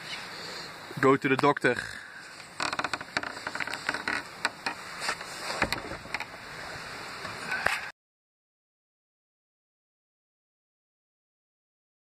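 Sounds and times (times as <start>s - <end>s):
faint steady hiss: 0.0s - 7.9s.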